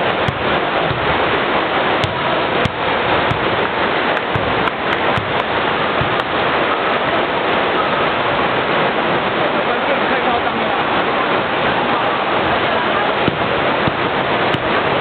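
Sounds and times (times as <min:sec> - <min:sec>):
echoing gymnasium hubbub: 0:00.0 - 0:08.1.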